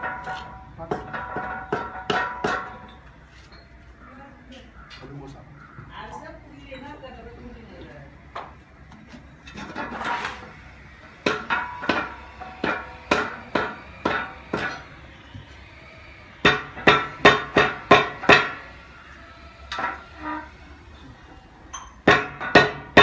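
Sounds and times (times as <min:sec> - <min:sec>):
short scraping noise: 0:09.6 - 0:10.5.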